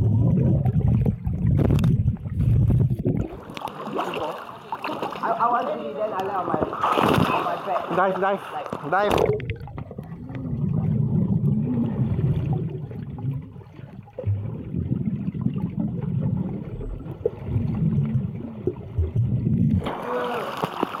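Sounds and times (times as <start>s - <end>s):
muffled underwater churning: 0.0s - 21.0s.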